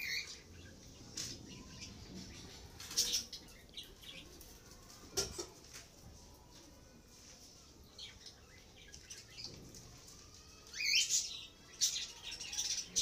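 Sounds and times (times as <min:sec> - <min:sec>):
birds chirping: 0:00.0 - 0:05.0, 0:07.8 - 0:13.0.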